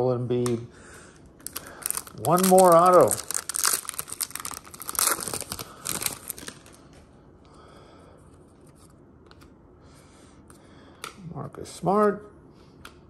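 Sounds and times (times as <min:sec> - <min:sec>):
plastic wrapper tearing and crinkling: 0:01.4 - 0:06.9
cards rustling and ticking: 0:01.4 - 0:07.0.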